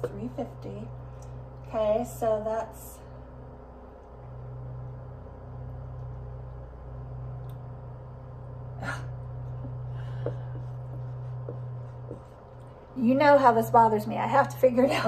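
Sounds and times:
low hum: 0.0s - 15.0s
marker strokes on a whiteboard: 10.2s - 13.5s.

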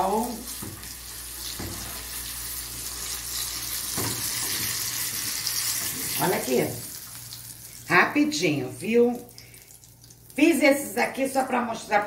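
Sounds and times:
shrimp sizzling in hot oil: 0.0s - 8.0s.

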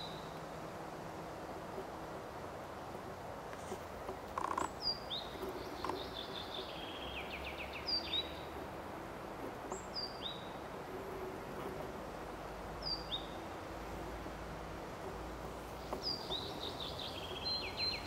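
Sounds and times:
steady background hiss: 0.0s - 18.0s
birds chirping: 3.6s - 8.6s, 9.6s - 11.4s, 12.7s - 13.5s, 15.0s - 18.0s.

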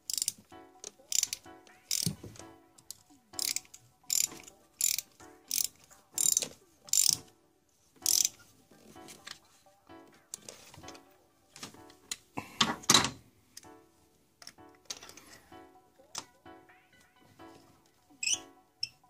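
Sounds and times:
ratchet wrench clicking: 0.0s - 0.4s, 1.1s - 2.2s, 3.4s - 7.2s, 8.0s - 8.4s.

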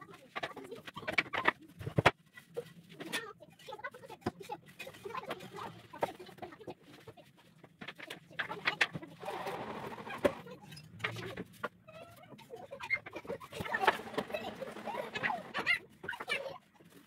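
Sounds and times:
wood scraping: 7.7s - 17.0s.

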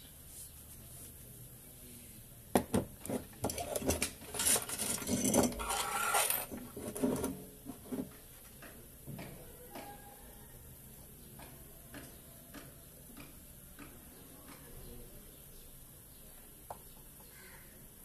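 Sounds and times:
metallic clattering and scraping: 3.0s - 8.1s.

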